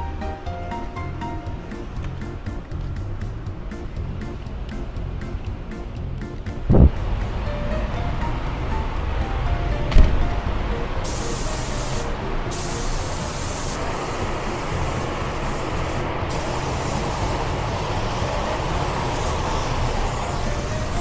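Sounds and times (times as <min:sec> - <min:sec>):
paint spray gun hissing: 0:11.0 - 0:21.0.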